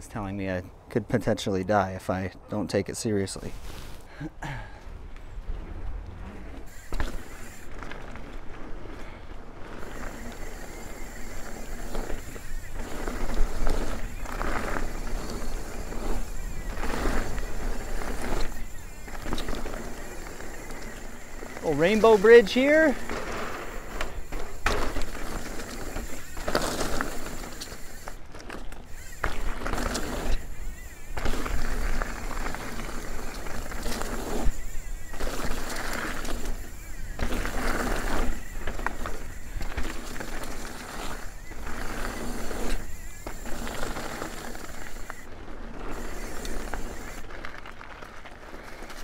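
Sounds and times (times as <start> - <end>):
bike tyre and trail noise: 0.0 - 49.0
bike knocks and rattles over bumps: 6.6 - 45.2.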